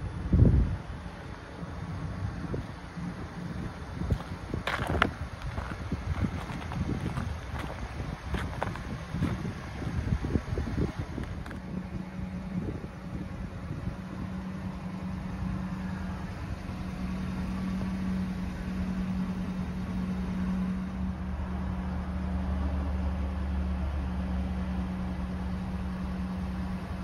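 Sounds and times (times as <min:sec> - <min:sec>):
deep low rumble: 0:00.0 - 0:25.9
truck engine idling: 0:00.0 - 0:27.0.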